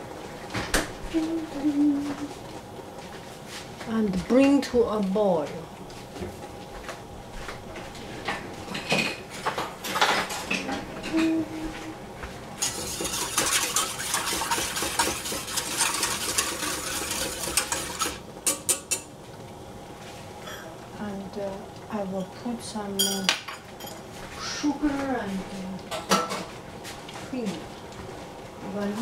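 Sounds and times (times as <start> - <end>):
whisk scraping metal saucepan: 12.6 - 18.2
utensils clicking and knocking: 12.6 - 19.1.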